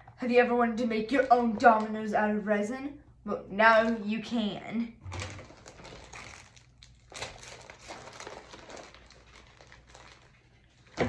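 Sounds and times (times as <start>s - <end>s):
plastic packaging rustling: 5.0s - 11.0s.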